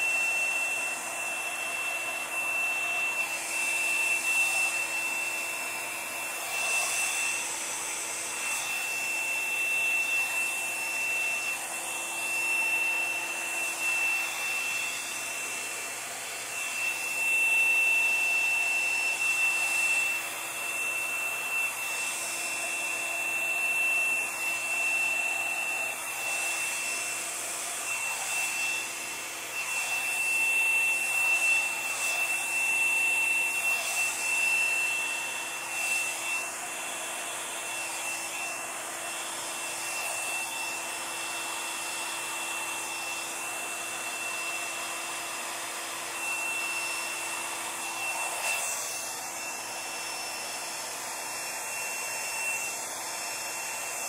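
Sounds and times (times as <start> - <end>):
hair dryer whining: 0.0 - 54.0.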